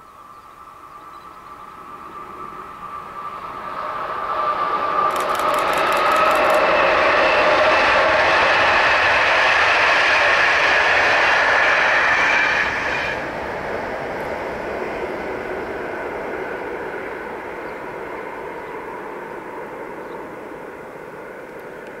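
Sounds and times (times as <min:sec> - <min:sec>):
train wheels rushing on rail: 0:02.1 - 0:22.0
quick run of rail clicks: 0:05.1 - 0:06.9.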